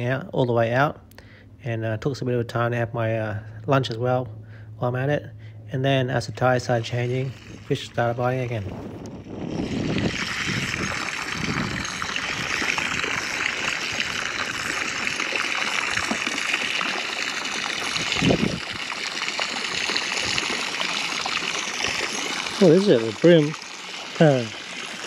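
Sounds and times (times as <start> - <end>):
water splashing and trickling: 6.2 - 25.0.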